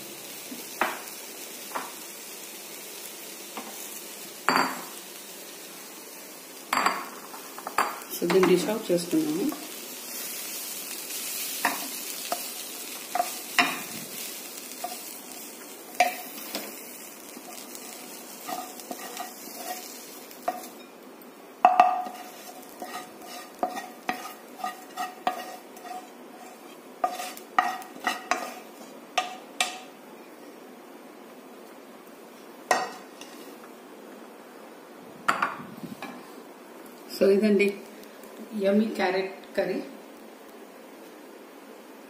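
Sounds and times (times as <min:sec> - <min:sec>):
faint sizzling: 0:00.0 - 0:42.0
spoon and pan knocking on plate: 0:04.5 - 0:04.9, 0:06.7 - 0:08.6, 0:21.6 - 0:22.2
spoon scraping frying pan: 0:11.2 - 0:13.9, 0:14.7 - 0:16.8, 0:17.4 - 0:20.9, 0:21.7 - 0:29.9.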